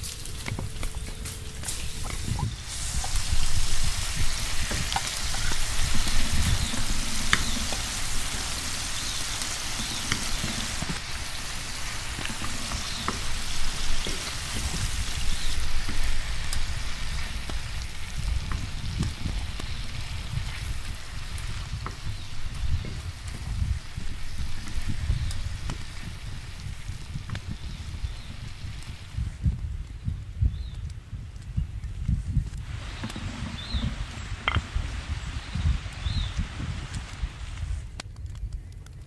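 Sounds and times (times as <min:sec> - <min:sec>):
vegetables sizzling in a frying pan: 0:00.0 - 0:29.3.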